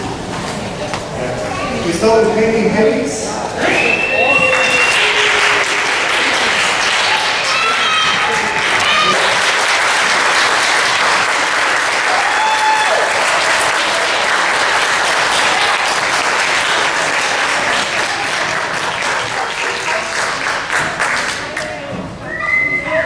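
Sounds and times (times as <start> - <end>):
audience applauding: 3.6 - 21.8.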